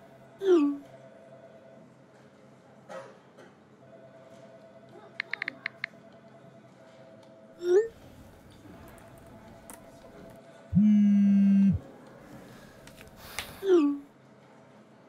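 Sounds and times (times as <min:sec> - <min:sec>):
laptop keyboard clicks: 0:05.2 - 0:05.9
phone vibrating buzz: 0:10.7 - 0:11.8.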